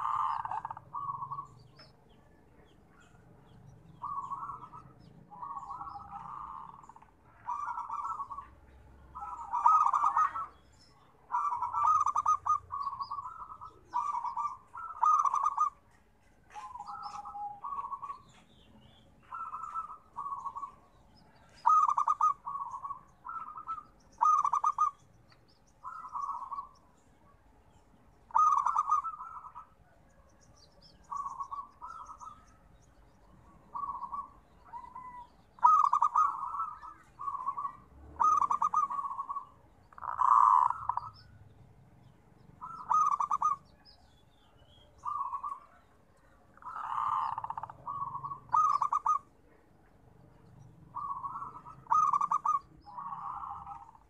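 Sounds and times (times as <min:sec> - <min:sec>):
dove cooing: 0:00.0 - 0:25.1, 0:25.8 - 0:41.6, 0:42.5 - 0:54.0.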